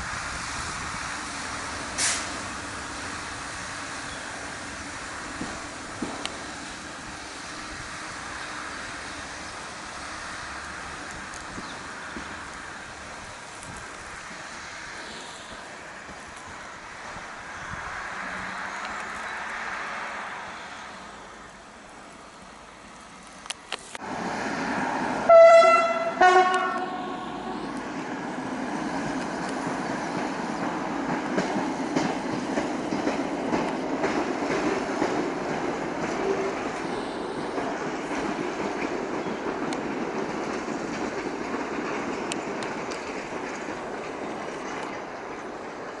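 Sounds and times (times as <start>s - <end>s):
rail vehicle running on track: 0.0s - 46.0s
rail horn blasts: 25.2s - 27.7s.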